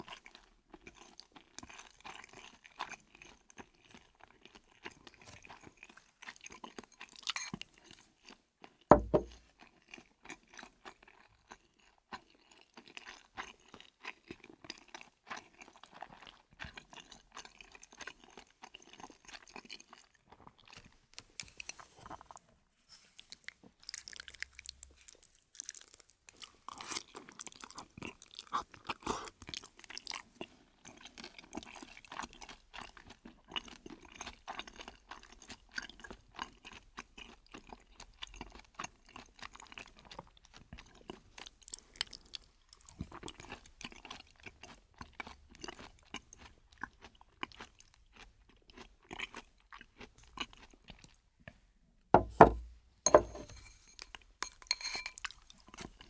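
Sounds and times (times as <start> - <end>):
chewing fried chicken crunching: 0.0 - 22.5, 23.1 - 51.6, 53.6 - 56.0
loud thump: 8.9 - 9.3, 52.2 - 53.4.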